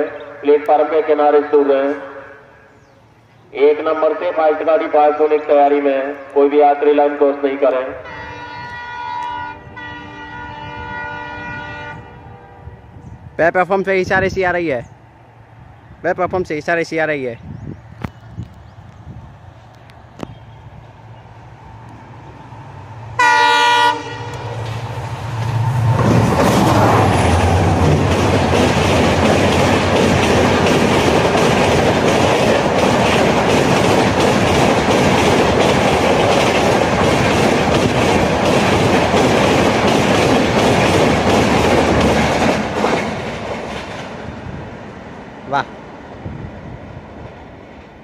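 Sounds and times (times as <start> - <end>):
train horn blast: 7.9 - 13.1, 23.2 - 24.6
rush of train wheels on rails: 23.9 - 48.0.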